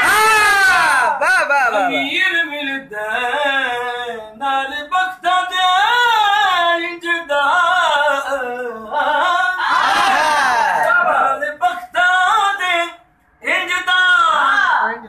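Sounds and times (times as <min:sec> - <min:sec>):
man singing unaccompanied: 0:01.2 - 0:14.5.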